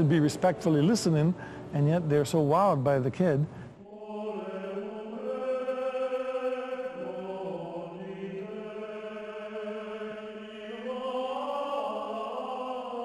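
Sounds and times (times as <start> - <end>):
choral chant: 3.8 - 13.0.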